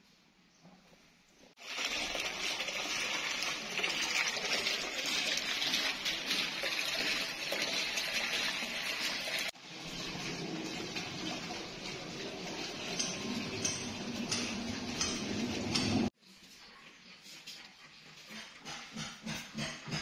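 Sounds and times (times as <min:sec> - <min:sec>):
fountain splashing into pool: 0:01.6 - 0:13.7.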